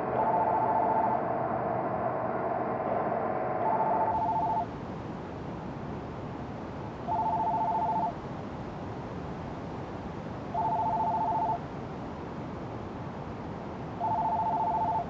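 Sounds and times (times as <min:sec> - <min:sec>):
cordless telephone ringing: 0:04.1 - 0:04.7, 0:07.1 - 0:08.2, 0:10.5 - 0:11.6, 0:14.0 - 0:15.0
background hiss: 0:04.1 - 0:15.0.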